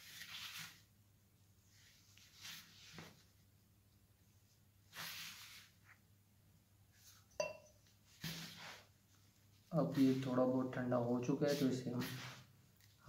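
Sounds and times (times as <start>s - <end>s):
whisk clinking against glass: 7.4s - 7.8s
whisk swishing powder: 8.1s - 8.9s, 9.7s - 12.5s.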